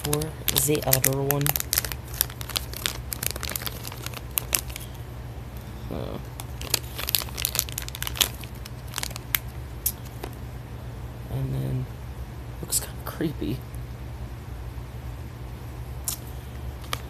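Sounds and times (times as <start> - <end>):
plastic packet crinkling and ripping: 0.0 - 4.9, 6.4 - 10.4, 16.1 - 17.0.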